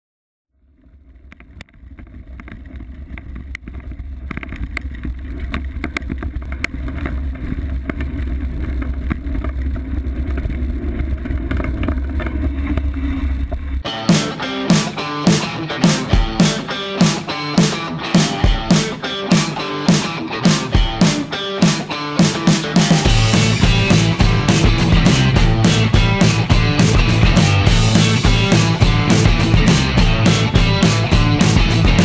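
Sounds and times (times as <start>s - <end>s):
guitar music: 13.8s - 32.0s.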